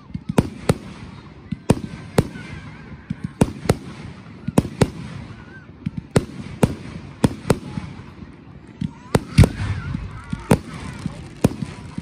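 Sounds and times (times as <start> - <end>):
fireworks bangs overhead: 0.0 - 12.0.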